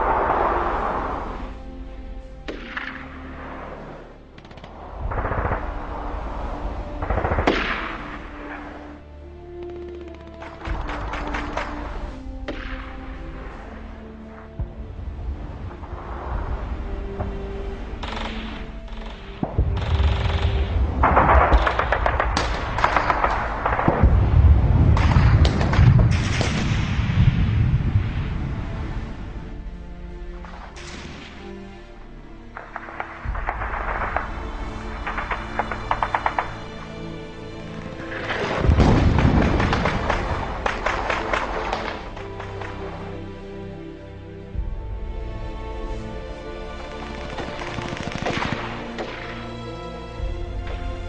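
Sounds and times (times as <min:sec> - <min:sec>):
background music: 0:00.0 - 0:51.0
low rumble: 0:00.0 - 0:51.0
gunfire crackle: 0:02.4 - 0:14.7, 0:17.2 - 0:28.4, 0:30.4 - 0:31.9, 0:32.5 - 0:43.4, 0:46.7 - 0:50.8
explosions: 0:04.6 - 0:08.9, 0:19.4 - 0:29.5, 0:32.6 - 0:36.6, 0:38.0 - 0:42.2
gunshot: 0:07.0 - 0:08.7, 0:19.4 - 0:28.1, 0:38.0 - 0:42.2
loud blast: 0:19.5 - 0:28.6, 0:38.1 - 0:40.7
machine-gun fire: 0:38.2 - 0:42.0, 0:47.1 - 0:49.4.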